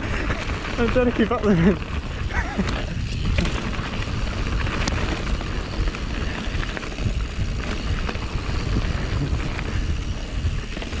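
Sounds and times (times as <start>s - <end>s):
bike clicks and rattles: 0.0s - 11.0s
bike tyres rolling over gravel: 0.0s - 11.0s
wind on microphone: 0.0s - 11.0s.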